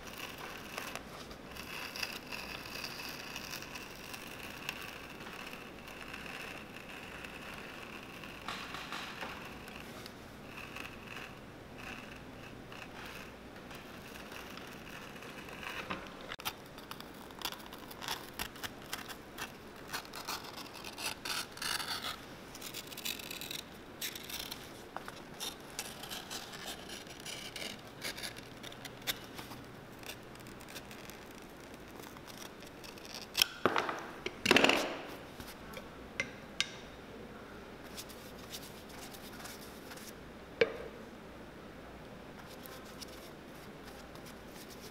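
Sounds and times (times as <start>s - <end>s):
knife cutting leather: 0.0s - 34.1s.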